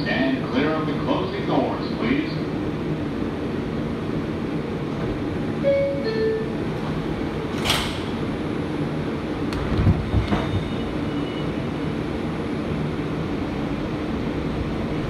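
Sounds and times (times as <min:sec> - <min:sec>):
subway car running hum: 0:00.0 - 0:15.0.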